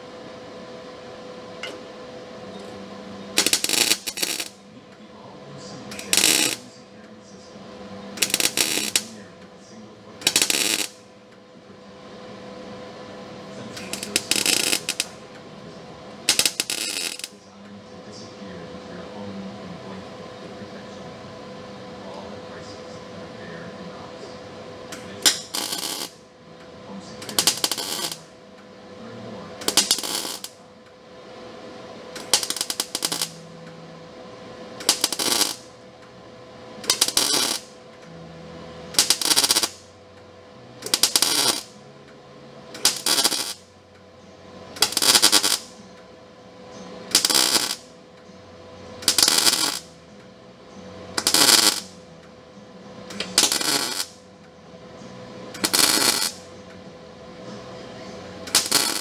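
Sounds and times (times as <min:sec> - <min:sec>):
faint steady hum: 0:00.0 - 0:59.0
welder crackling sizzle: 0:03.3 - 0:04.6, 0:05.9 - 0:06.7, 0:08.1 - 0:09.2, 0:10.2 - 0:11.0, 0:13.8 - 0:15.3, 0:16.2 - 0:17.4, 0:24.9 - 0:26.2, 0:27.2 - 0:28.3, 0:29.6 - 0:30.6, 0:32.2 - 0:33.4, 0:34.6 - 0:35.8, 0:36.8 - 0:37.8, 0:38.9 - 0:39.9, 0:40.8 - 0:41.7, 0:42.7 - 0:43.7, 0:44.8 - 0:45.8, 0:47.1 - 0:47.9, 0:49.0 - 0:50.0, 0:51.2 - 0:52.0, 0:53.1 - 0:54.2, 0:55.5 - 0:56.5, 0:58.3 - 0:59.0.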